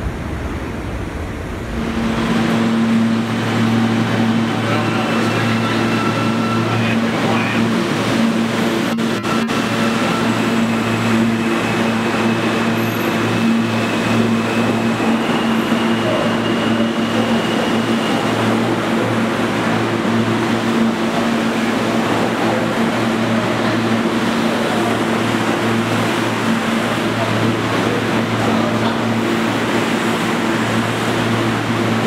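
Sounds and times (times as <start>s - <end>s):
steady hum: 0.0s - 5.5s
subway train wheels on rail: 0.0s - 32.0s.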